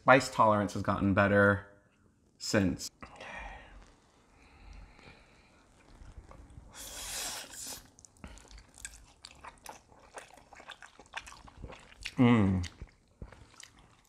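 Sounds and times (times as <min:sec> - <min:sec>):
wet chewing with mouth clicks: 0:04.6 - 0:14.0
noodle slurping: 0:04.9 - 0:14.0.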